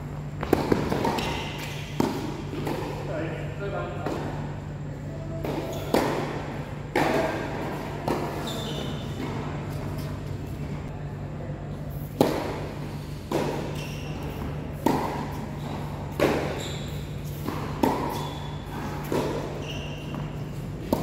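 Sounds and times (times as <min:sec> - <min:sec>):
tennis ball hit by racquets: 0:00.4 - 0:03.0, 0:05.4 - 0:10.1, 0:12.1 - 0:21.0.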